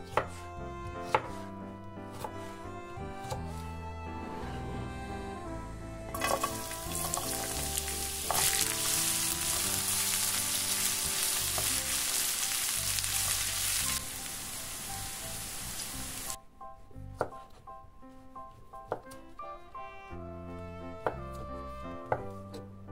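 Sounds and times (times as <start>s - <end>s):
spatula stirring in pan: 6.2s - 14.3s
vegetables sizzling in hot oil: 6.2s - 16.4s.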